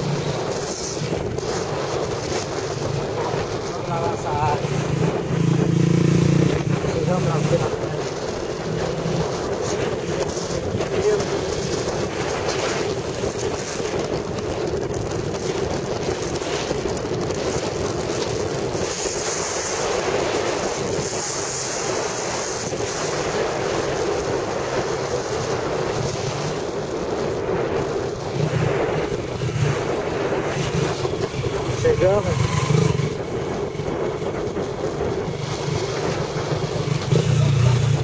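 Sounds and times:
low rumble: 0:00.0 - 0:38.0
motorcycle engine running: 0:00.0 - 0:38.0
wind buffeting microphone: 0:00.0 - 0:38.0.

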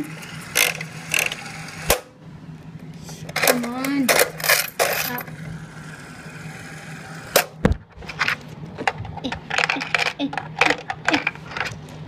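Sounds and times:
slot machine reels whirring: 0:00.0 - 0:02.1, 0:03.4 - 0:07.6.

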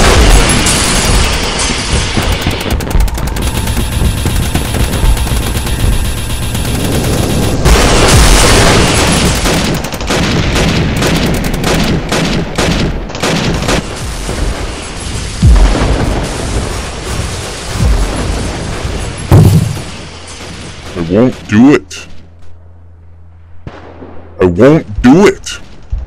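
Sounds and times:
large explosion: 0:00.0 - 0:11.0, 0:14.0 - 0:21.1
rapid gunshots: 0:00.0 - 0:21.7
deep booms: 0:15.2 - 0:20.0.

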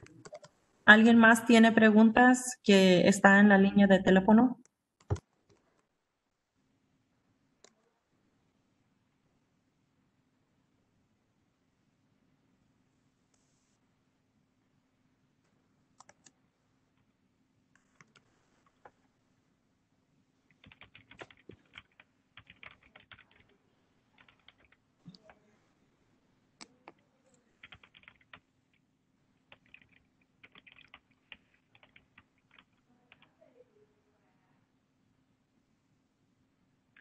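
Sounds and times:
faint keyboard typing: 0:00.0 - 0:00.6, 0:04.6 - 0:05.9, 0:15.4 - 0:17.1, 0:17.7 - 0:19.1, 0:20.5 - 0:25.5, 0:26.6 - 0:33.6
faint steady hum: 0:00.0 - 0:37.0.

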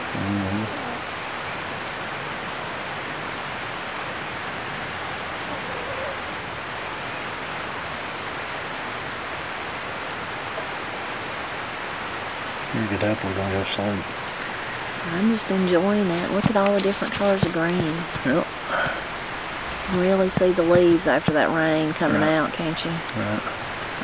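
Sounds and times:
faint bird chirps: 0:00.0 - 0:02.2, 0:05.5 - 0:07.3.

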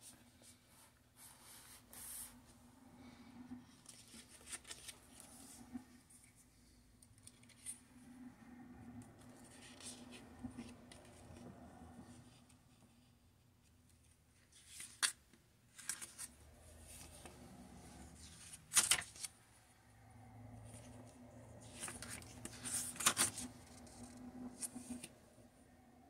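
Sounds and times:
paper rustling and crackling: 0:14.5 - 0:17.5, 0:18.2 - 0:19.3, 0:21.6 - 0:25.1.

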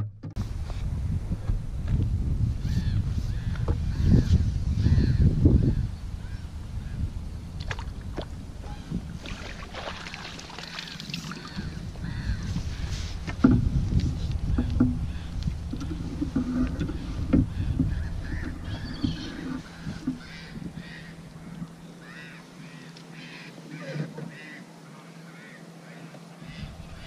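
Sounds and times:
water splashing: 0:07.6 - 0:11.8
geese honking: 0:15.1 - 0:27.0.

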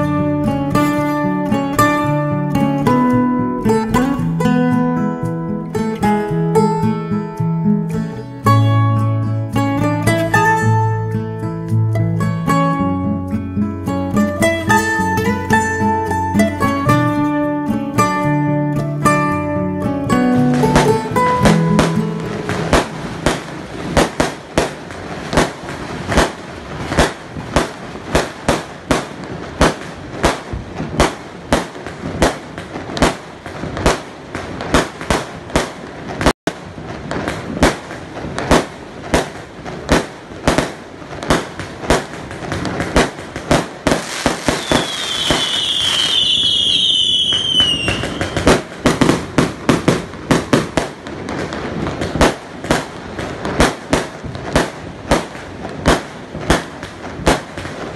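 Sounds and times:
fireworks bangs: 0:00.0 - 0:07.1, 0:14.1 - 0:57.9
fireworks falling whistles: 0:20.6 - 0:57.9.

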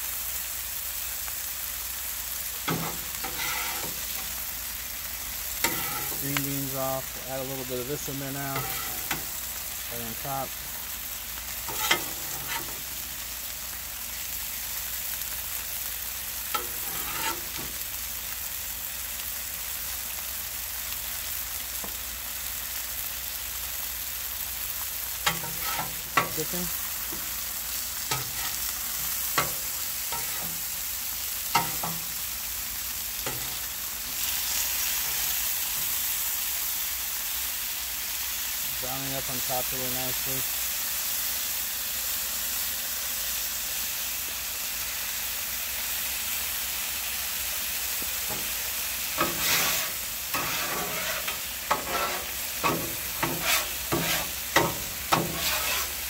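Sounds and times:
chicken sizzling on griddle: 0:00.0 - 0:56.0
metal spatula scraping griddle: 0:02.6 - 0:10.9, 0:11.6 - 0:13.2, 0:16.5 - 0:17.8, 0:25.2 - 0:32.3, 0:33.2 - 0:36.0, 0:48.3 - 0:56.0.

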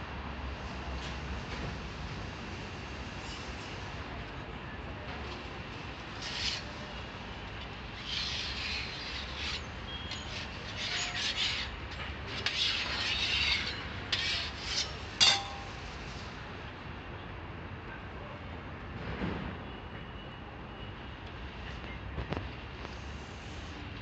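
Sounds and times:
metal spatula scraping on griddle: 0:06.2 - 0:06.8, 0:07.8 - 0:16.1
sharp metal clack: 0:13.4 - 0:15.8.

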